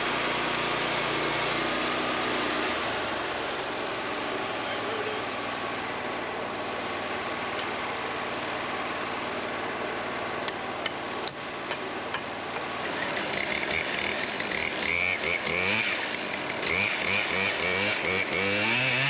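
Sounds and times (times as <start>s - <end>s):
sawmill engine idling: 0.0s - 19.0s
metal tool clanks: 10.8s - 13.3s.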